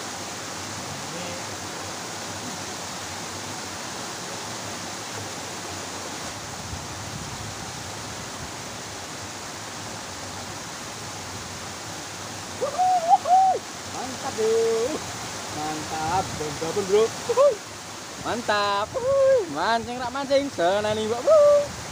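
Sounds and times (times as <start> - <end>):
water rushing into stream: 0.0 - 21.9
pitched call: 12.6 - 13.6.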